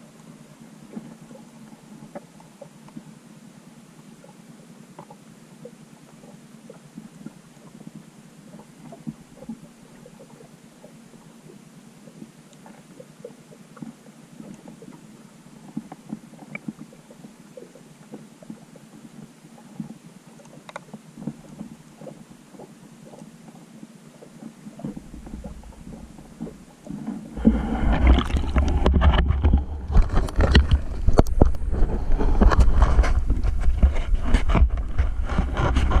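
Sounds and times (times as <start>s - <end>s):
faint underwater crackling: 0.0s - 36.0s
water sloshing and splashing: 4.2s - 36.0s
low rumble against housing: 24.3s - 36.0s.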